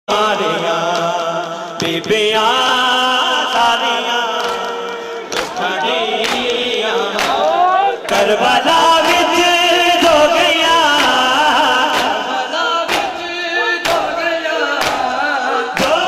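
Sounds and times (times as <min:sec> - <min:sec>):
men chanting a lament: 0:00.1 - 0:16.0
hands slapping bare chests: 0:07.2 - 0:07.4, 0:11.0 - 0:12.2, 0:12.8 - 0:13.2, 0:13.8 - 0:14.2, 0:14.8 - 0:15.2.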